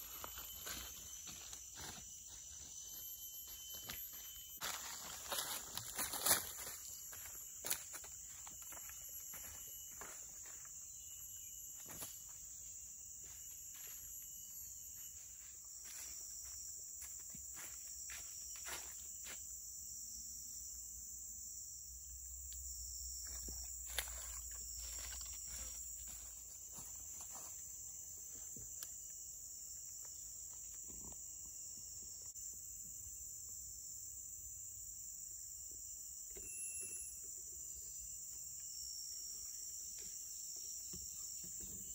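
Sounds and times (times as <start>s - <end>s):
footsteps on forest floor: 0.0s - 19.4s, 23.2s - 28.8s
insects chorus: 0.0s - 41.9s.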